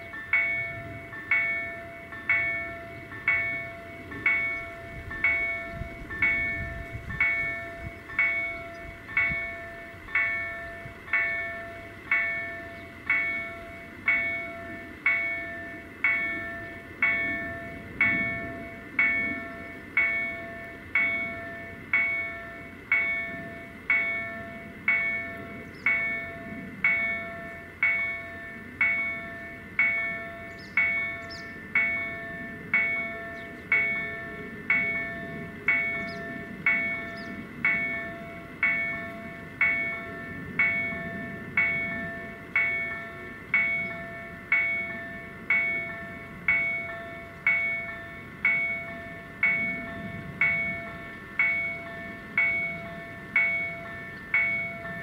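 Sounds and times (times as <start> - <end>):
level crossing warning bell: 0.0 - 55.0.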